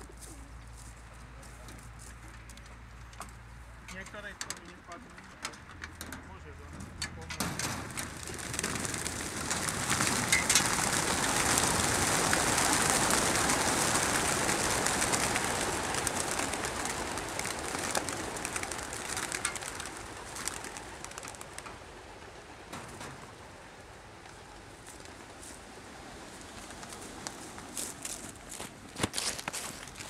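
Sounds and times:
sharp wing claps: 7.6 - 21.8
pigeon wings fluttering: 7.6 - 30.0.

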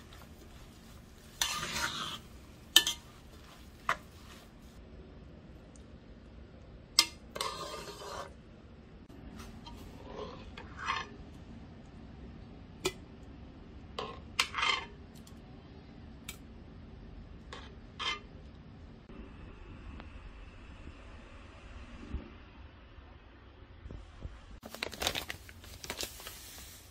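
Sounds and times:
spoon scraping fruit in pot: 1.3 - 4.4, 7.0 - 8.4.

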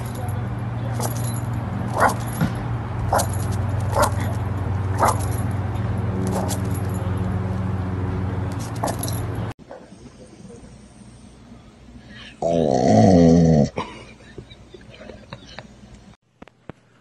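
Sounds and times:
steady low hum: 0.0 - 12.8
dog barking: 1.9 - 2.3, 3.1 - 3.3, 3.9 - 4.3, 5.0 - 5.2, 6.3 - 6.6.

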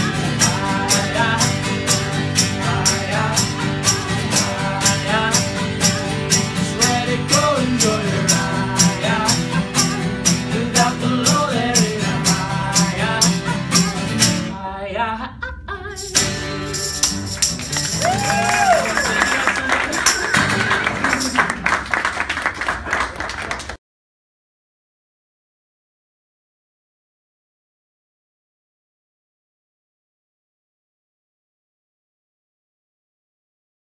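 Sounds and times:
acoustic guitars strumming: 0.0 - 14.7, 15.9 - 21.9
man singing: 0.0 - 15.5.

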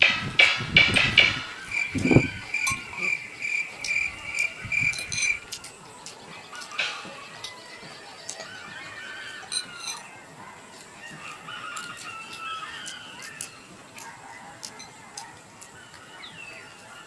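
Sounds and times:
insect chirping: 0.7 - 16.9
rooster crowing: 6.4 - 17.0.

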